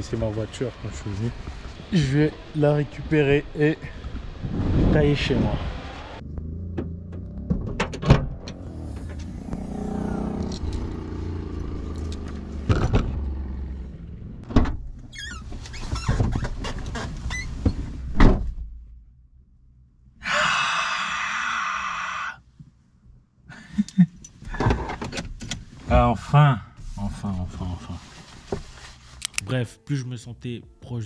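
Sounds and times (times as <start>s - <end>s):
clothes rustling: 27.8s - 29.5s.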